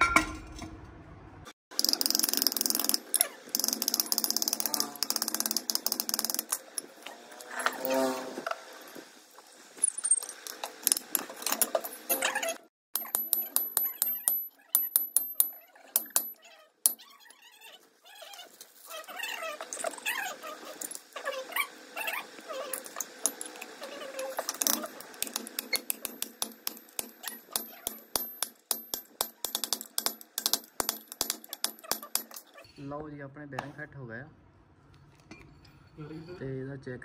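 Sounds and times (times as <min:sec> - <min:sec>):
steel parts clinking: 0:01.7 - 0:08.0, 0:09.7 - 0:17.0, 0:22.6 - 0:32.7
thin wavering squeaks: 0:04.0 - 0:05.5, 0:06.4 - 0:09.0, 0:13.8 - 0:28.2.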